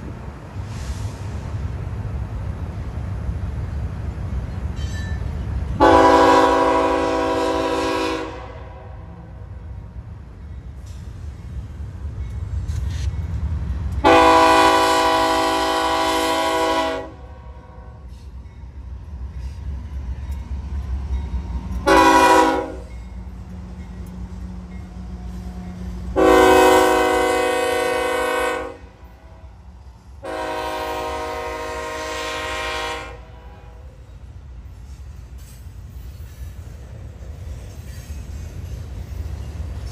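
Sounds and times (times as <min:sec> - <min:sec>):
train rumble: 0:00.0 - 0:39.9
locomotive air horn blasts: 0:05.8 - 0:09.1, 0:14.0 - 0:17.9, 0:21.8 - 0:22.9, 0:26.2 - 0:29.5, 0:30.2 - 0:34.0.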